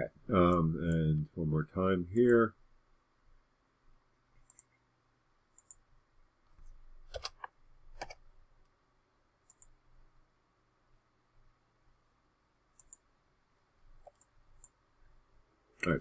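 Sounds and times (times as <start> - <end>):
computer mouse and keyboard clicks: 5.6 - 5.8, 6.6 - 8.3, 9.5 - 9.8, 12.8 - 13.0, 14.0 - 14.8.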